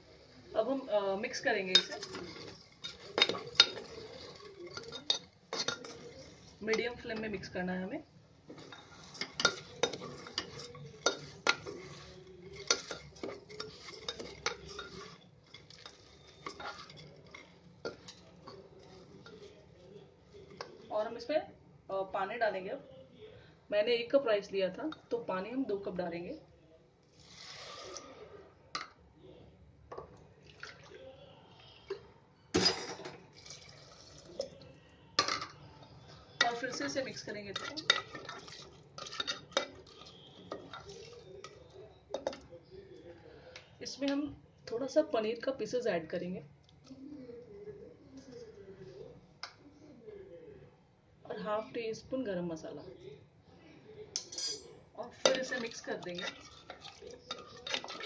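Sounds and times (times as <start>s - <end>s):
spatula scraping and knocking pot: 1.3s - 7.6s, 8.4s - 19.7s, 36.4s - 42.5s, 55.2s - 58.0s.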